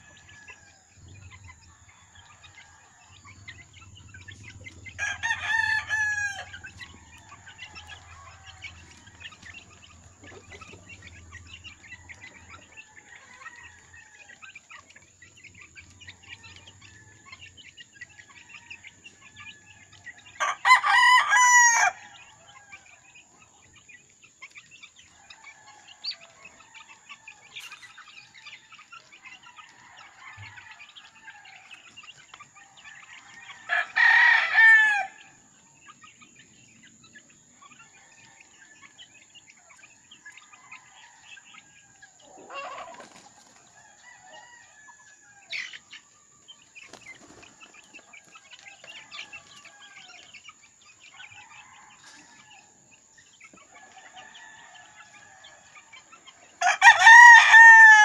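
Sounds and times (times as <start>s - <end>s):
chicks peeping and chirping: 0.0s - 58.0s
rooster crowing: 4.9s - 9.2s, 18.3s - 22.9s, 33.0s - 35.4s, 43.7s - 45.7s, 51.2s - 52.8s, 53.7s - 58.0s.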